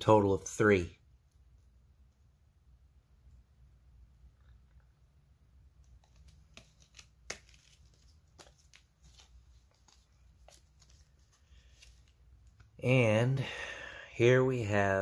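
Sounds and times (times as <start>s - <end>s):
faint plastic rustling: 5.8s - 12.8s.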